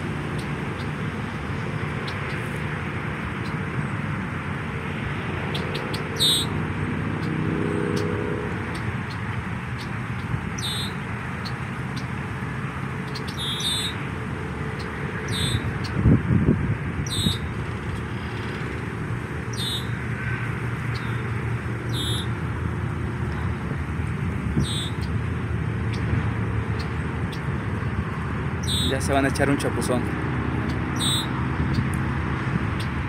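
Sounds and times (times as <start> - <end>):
freeway traffic hum: 0.0 - 33.0
goslings peeping: 5.5 - 6.6, 10.6 - 12.1, 13.1 - 14.1, 14.8 - 16.0, 17.0 - 17.6, 19.5 - 20.0, 21.9 - 22.4, 24.5 - 25.2, 28.6 - 29.1, 30.6 - 31.8.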